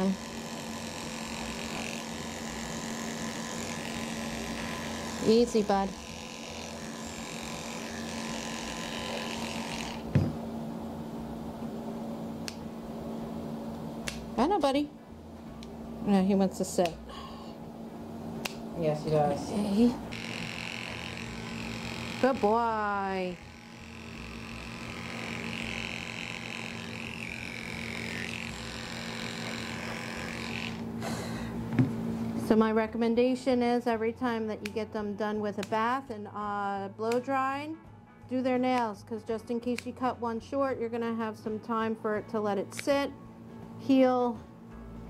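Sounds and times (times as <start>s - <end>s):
electric dog clipper buzzing: 0.0s - 10.5s, 18.4s - 32.0s
steady low hum: 0.0s - 38.4s
short thump: 10.1s - 10.4s.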